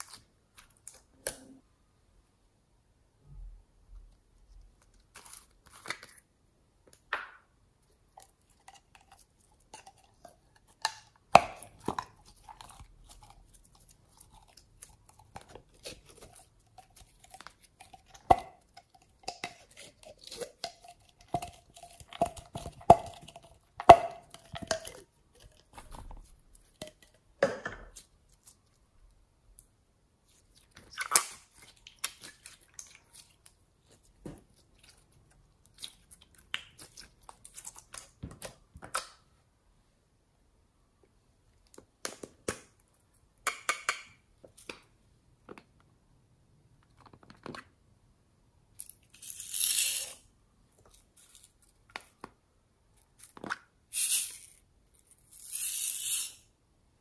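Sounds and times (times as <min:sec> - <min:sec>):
slime squelching: 0:07.8 - 0:27.0, 0:30.2 - 0:38.7.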